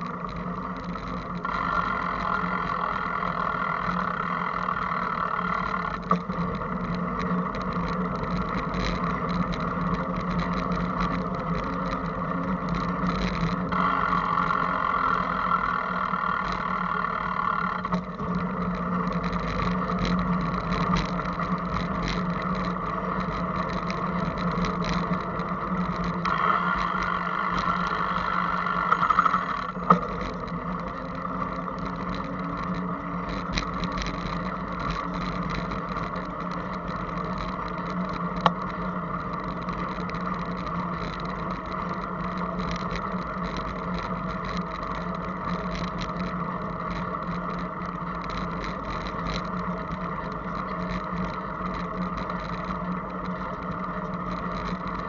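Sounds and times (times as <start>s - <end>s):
high buzzing: 0.0s - 43.0s
bicycle riding hum and rattle: 0.0s - 55.0s.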